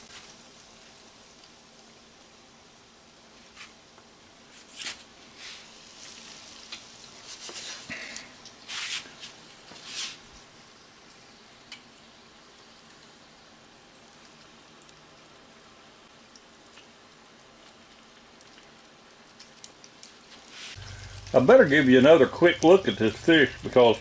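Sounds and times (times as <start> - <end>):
fish deep-frying in hot oil: 0.0 - 24.0.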